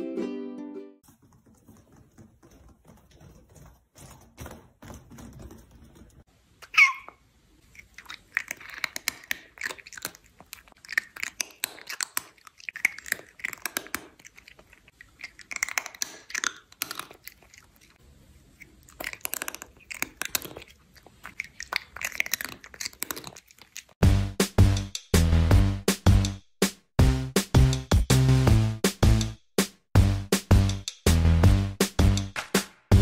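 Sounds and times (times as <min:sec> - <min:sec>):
cat clicking mouth sounds: 0:07.8 - 0:18.0
loud drum-led music: 0:24.0 - 0:33.0.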